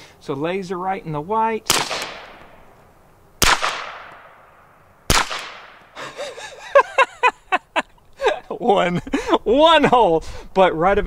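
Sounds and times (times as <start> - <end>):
suppressed pistol shots: 1.7 - 2.8, 3.4 - 6.0.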